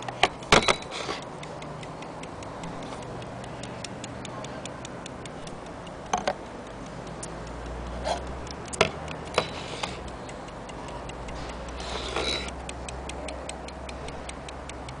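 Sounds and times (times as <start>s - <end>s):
clock ticking fast: 0.0s - 15.0s
knocks on brass case: 6.1s - 6.4s
brass case scraping: 11.9s - 12.5s.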